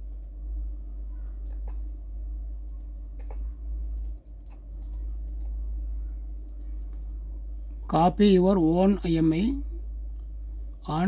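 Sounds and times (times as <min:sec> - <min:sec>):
steady low hum: 0:00.0 - 0:11.0
keyboard and mouse clicks: 0:01.2 - 0:02.0, 0:02.6 - 0:05.6.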